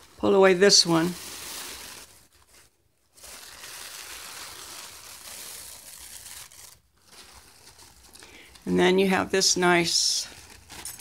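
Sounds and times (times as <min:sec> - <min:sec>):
paper napkin rustling: 0:00.0 - 0:08.2.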